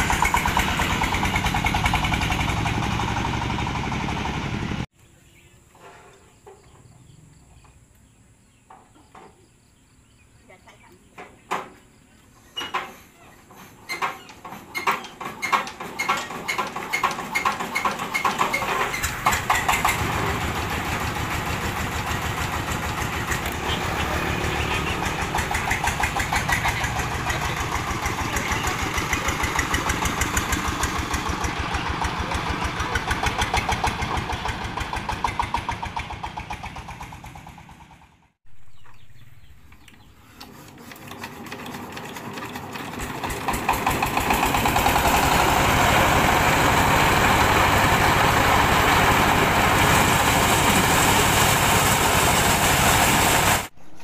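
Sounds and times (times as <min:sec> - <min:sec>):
small diesel engine chugging: 0:00.0 - 0:04.9, 0:12.6 - 0:38.4, 0:40.1 - 0:53.7
thresher diesel engine running: 0:00.0 - 0:04.9, 0:13.5 - 0:38.3, 0:40.4 - 0:53.8.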